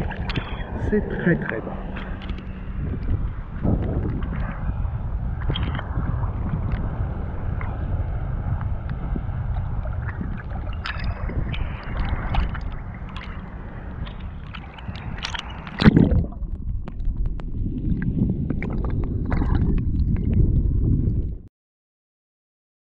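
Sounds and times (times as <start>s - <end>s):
small drips and clicks: 0.0s - 0.7s, 2.0s - 4.6s, 5.4s - 6.0s, 7.6s - 20.5s
sea water lapping and splashing: 0.0s - 7.8s, 8.4s - 20.8s
steady low rumble: 0.0s - 21.5s.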